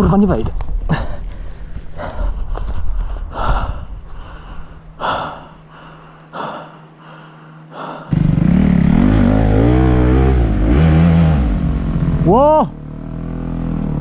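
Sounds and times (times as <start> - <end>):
heavy panting: 0.9 - 8.1
dirt bike engine revving: 8.1 - 14.0.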